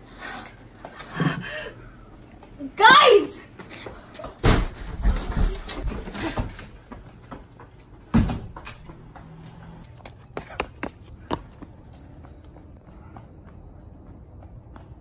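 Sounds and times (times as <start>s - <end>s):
steady high whine: 0.0s - 9.8s.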